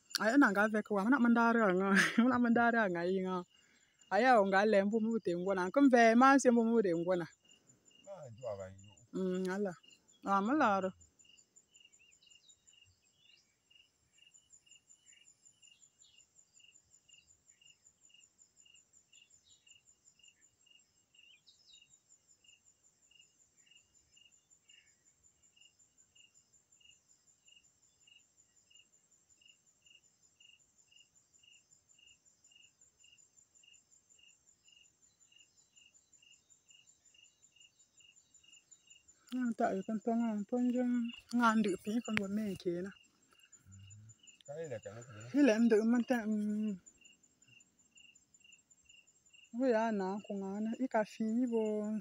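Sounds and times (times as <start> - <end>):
insect high chirp: 0.0 - 52.0
rapid insect trill: 0.0 - 52.0
short faint calls: 43.5 - 46.2.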